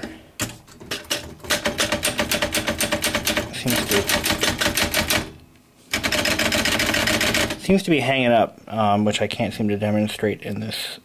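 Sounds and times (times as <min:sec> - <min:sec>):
typewriter carriage ratcheting clicks: 0:00.4 - 0:07.6.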